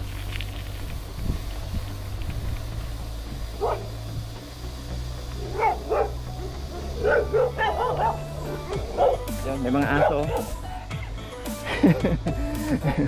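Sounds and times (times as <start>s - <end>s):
dogs barking: 3.6s - 4.0s, 5.3s - 12.0s.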